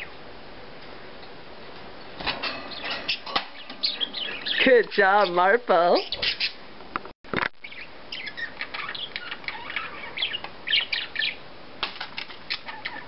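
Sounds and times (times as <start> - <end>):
budgies chirping: 2.5 - 6.6, 7.6 - 11.4, 12.1 - 13.0.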